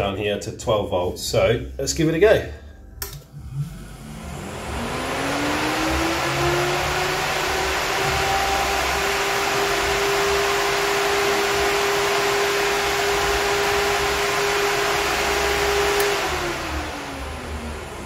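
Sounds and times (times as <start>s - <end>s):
electric fan running: 3.0s - 18.0s
fan spinning down: 3.2s - 18.0s.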